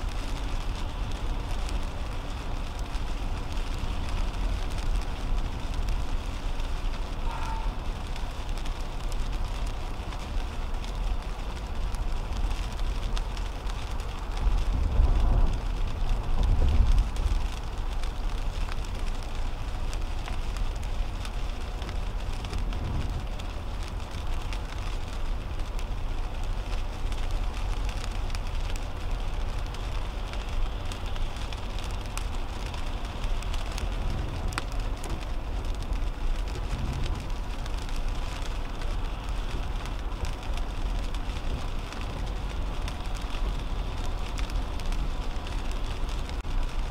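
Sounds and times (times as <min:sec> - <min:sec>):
rain pattering on windshield: 0:00.0 - 0:46.9
tyres on wet road: 0:00.0 - 0:46.9.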